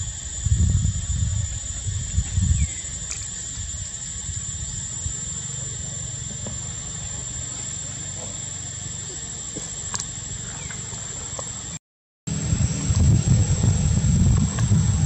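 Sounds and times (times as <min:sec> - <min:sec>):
wind rumbling on microphone: 0:00.0 - 0:05.5, 0:12.3 - 0:15.0
high-pitched insect drone: 0:00.0 - 0:15.0.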